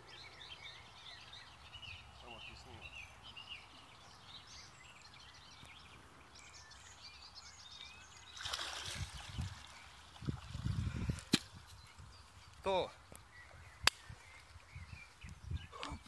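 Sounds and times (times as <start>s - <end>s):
water splashing: 8.2s - 10.9s.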